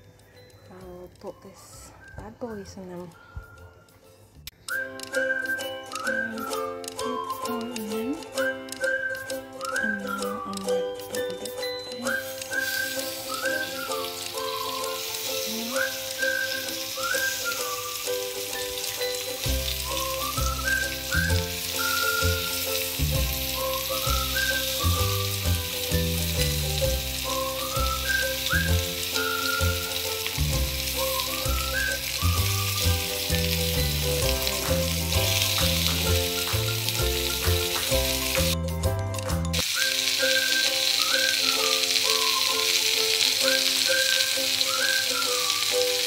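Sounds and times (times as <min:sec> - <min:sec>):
chicken sizzling on griddle: 0:12.1 - 0:38.6, 0:39.6 - 0:46.0
background music with bass: 0:19.4 - 0:39.6.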